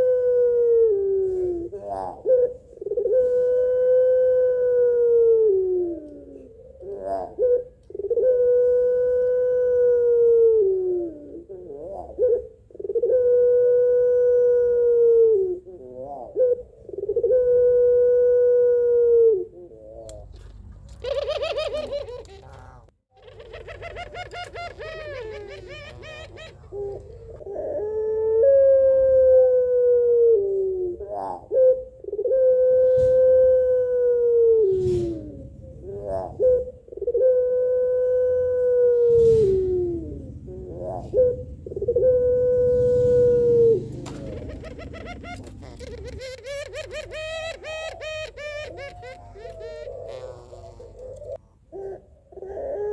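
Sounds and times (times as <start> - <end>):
dove cooing: 0.0 - 52.9.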